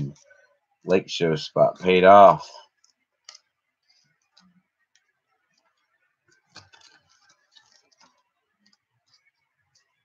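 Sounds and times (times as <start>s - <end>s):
cards handled on a table mat: 5.5s - 9.9s.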